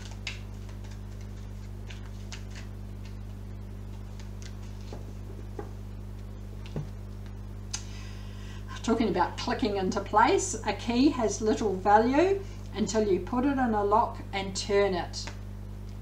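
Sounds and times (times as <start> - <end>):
cards being shuffled: 0.0 - 7.3
low electrical hum: 0.0 - 16.0.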